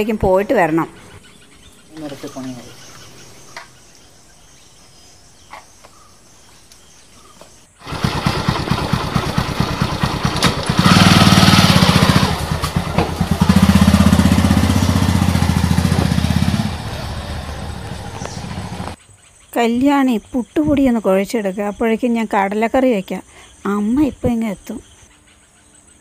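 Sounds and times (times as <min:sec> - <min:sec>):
motorcycle engine starting and revving: 0:07.8 - 0:19.0.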